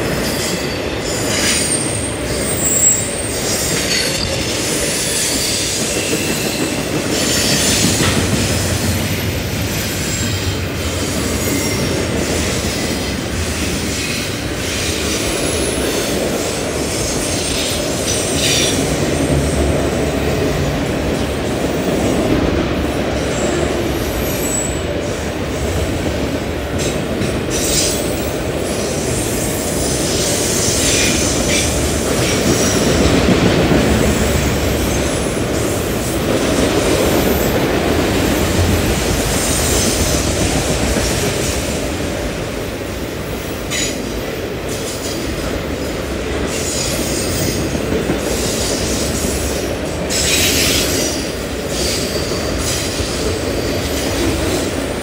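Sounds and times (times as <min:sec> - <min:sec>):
freight train wheels rumbling on rail: 0:00.0 - 0:55.0
high-pitched wheel squeals: 0:00.2 - 0:06.6.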